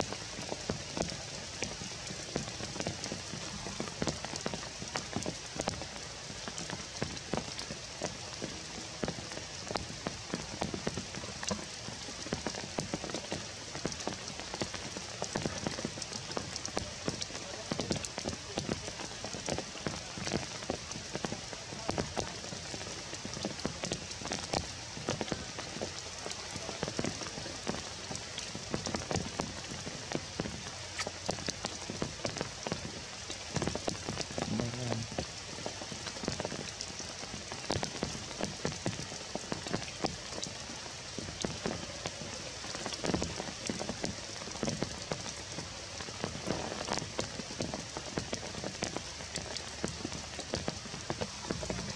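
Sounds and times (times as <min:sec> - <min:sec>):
rain falling on foliage: 0:00.0 - 0:51.9.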